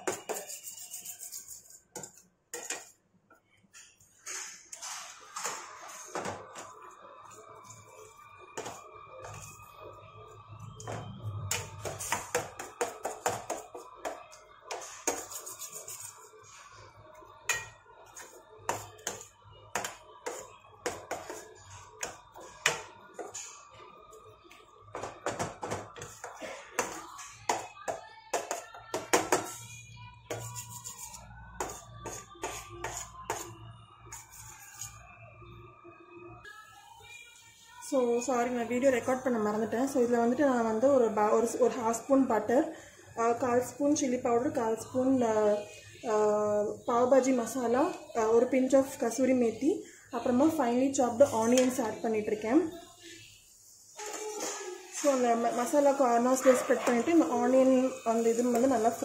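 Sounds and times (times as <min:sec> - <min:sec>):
wooden spatula scraping steel pan: 0:00.0 - 0:03.0, 0:14.7 - 0:16.7, 0:30.3 - 0:35.1
faint background music: 0:00.0 - 0:59.0.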